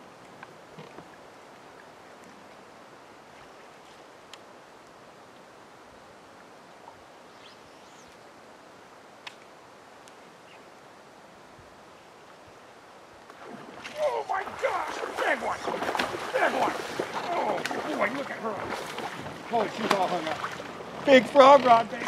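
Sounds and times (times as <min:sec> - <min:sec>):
soft steady hiss: 0:00.0 - 0:22.0
faint sharp clicks: 0:04.3 - 0:04.5, 0:09.2 - 0:10.2
high rising bird chirp: 0:07.3 - 0:08.2.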